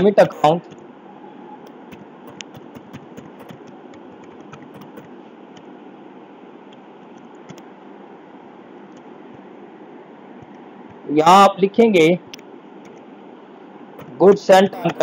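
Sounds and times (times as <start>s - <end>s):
keyboard keys clicking: 1.6s - 5.1s, 14.0s - 15.0s.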